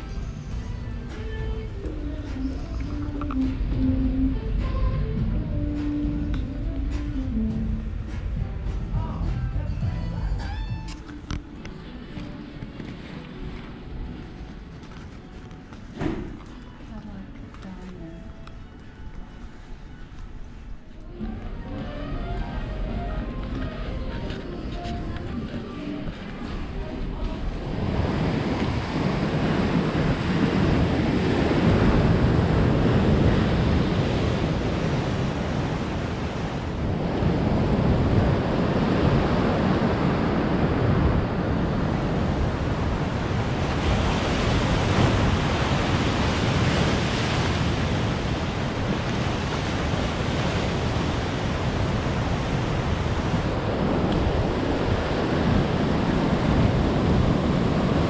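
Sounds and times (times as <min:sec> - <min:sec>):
wind rumbling on microphone: 0:00.0 - 0:58.0
ocean surf breaking over rocks: 0:25.0 - 0:58.0.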